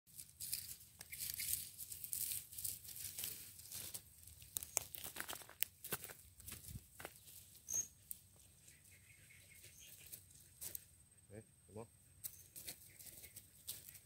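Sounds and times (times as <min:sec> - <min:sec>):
rustling and crackling: 0:00.1 - 0:08.9, 0:12.2 - 0:14.0.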